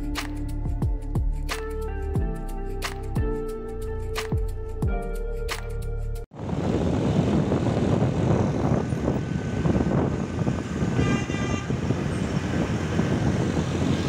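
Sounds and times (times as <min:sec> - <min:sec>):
motorbike engine and road noise: 0:06.3 - 0:14.0
wind buffeting microphone: 0:06.3 - 0:14.0
horn toot: 0:10.8 - 0:12.2.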